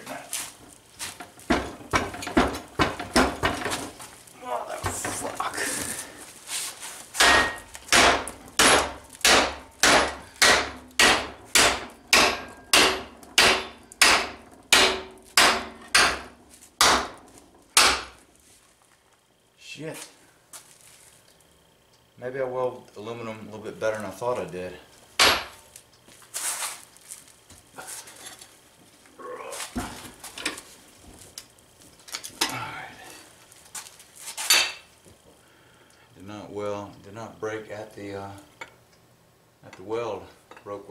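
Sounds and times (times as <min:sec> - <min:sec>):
hammer striking metal plate: 0:07.2 - 0:17.2, 0:17.8 - 0:18.1, 0:25.2 - 0:25.6.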